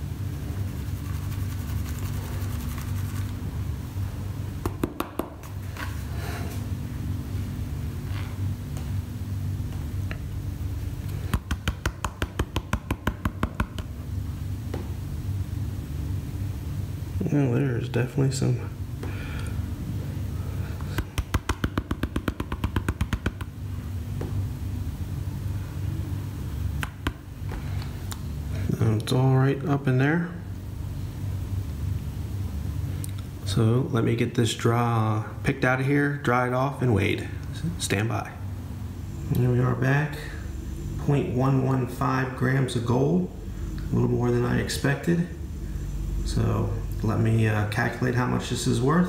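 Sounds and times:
steady low hum: 0.0s - 49.0s
sharp taps on a plastic pan: 11.4s - 13.9s, 21.0s - 23.5s.

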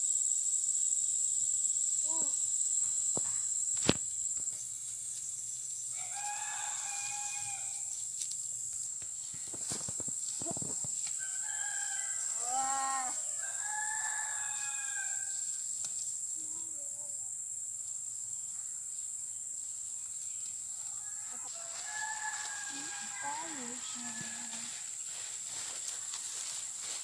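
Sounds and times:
rooster crowing: 5.9s - 7.9s, 11.2s - 15.5s, 20.9s - 24.9s.

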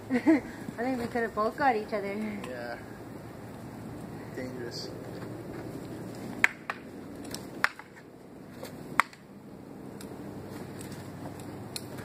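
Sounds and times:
wooden swords clacking: 6.4s - 8.0s, 8.6s - 9.3s.

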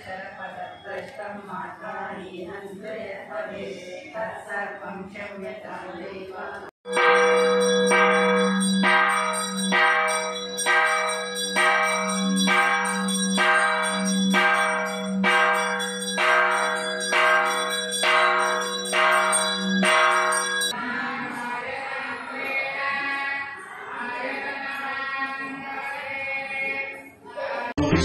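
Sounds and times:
large temple bell ringing: 6.9s - 20.8s.

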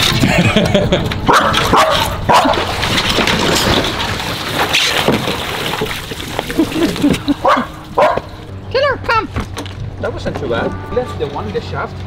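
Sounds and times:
water sloshing and splashing: 1.4s - 8.5s.

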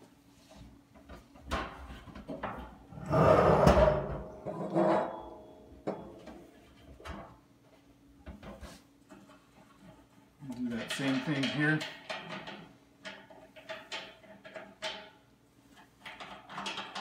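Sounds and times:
metal drum clanking and ringing: 3.0s - 6.3s.

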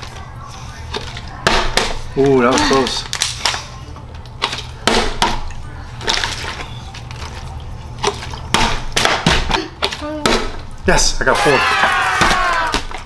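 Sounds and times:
water sloshing in bottle: 4.4s - 8.9s.

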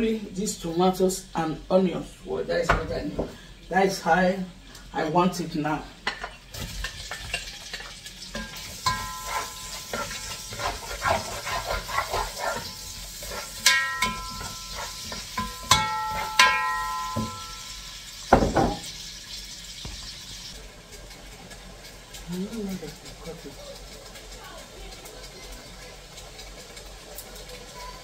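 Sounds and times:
stirring in a pot: 6.0s - 28.0s
spoon scraping a ceramic plate: 8.4s - 16.4s
sharp ringing knocks: 15.4s - 17.7s.

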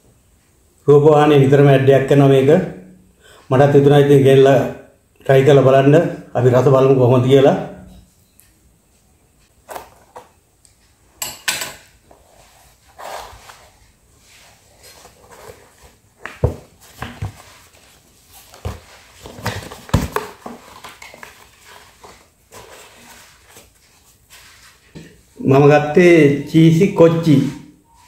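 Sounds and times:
cardboard rustling and scraping: 12.0s - 25.4s.

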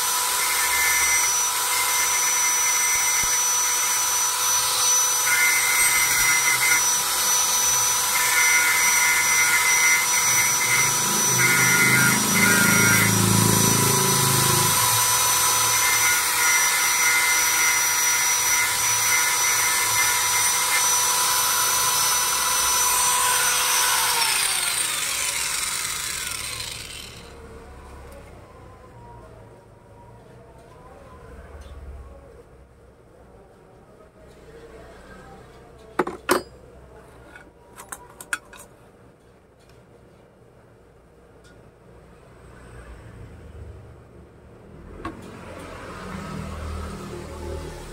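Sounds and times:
angle grinder grinding steel: 0.0s - 27.4s.

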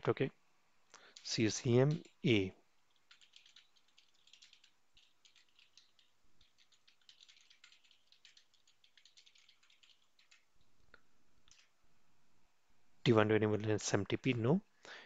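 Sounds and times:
faint low hum: 0.0s - 15.0s
typing on computer keyboard: 1.1s - 2.2s, 2.9s - 10.7s, 11.5s - 11.7s.

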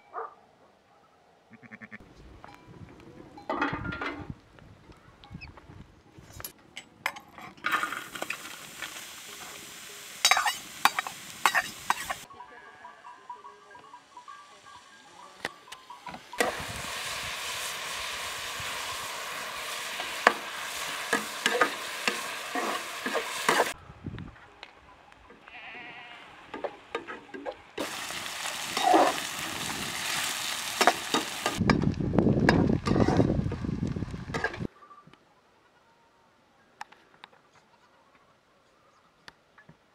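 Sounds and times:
sheep and goats bleating: 1.5s - 2.0s, 12.3s - 13.7s, 25.4s - 26.4s
onions sizzling in pan: 7.7s - 12.3s, 14.1s - 23.8s, 27.8s - 34.7s
spoon stirring in metal pan: 10.2s - 12.3s, 19.7s - 23.8s.

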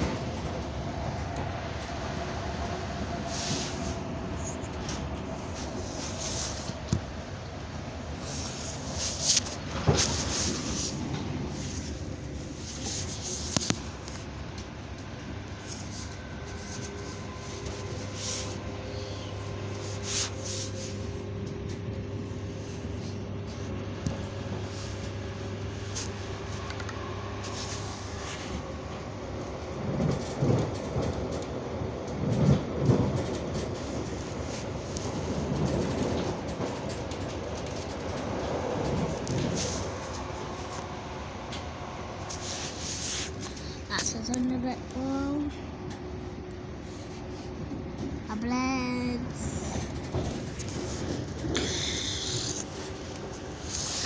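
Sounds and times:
train rumble and hum: 0.0s - 54.0s
phone rustling against fabric: 8.3s - 11.0s.

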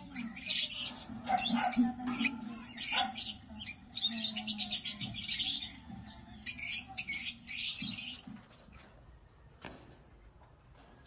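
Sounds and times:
lovebirds squawking: 0.0s - 8.3s.

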